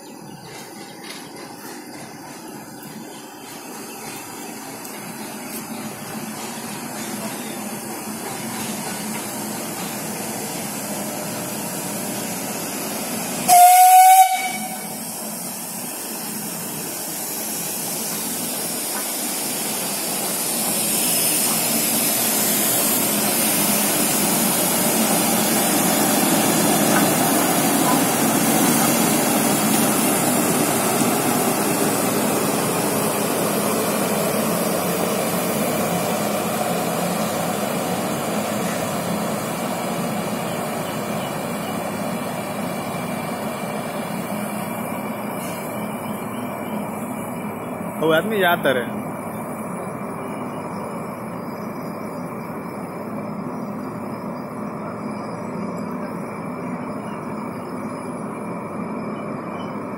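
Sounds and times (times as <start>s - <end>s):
steam locomotive hissing: 0.0s - 59.9s
shrill train whistle: 13.4s - 15.1s.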